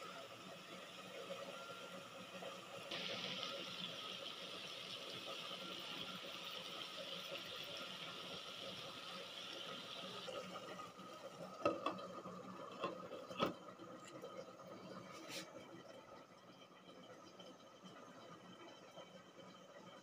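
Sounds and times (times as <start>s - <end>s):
tomatoes sizzling in a pan: 2.8s - 10.9s.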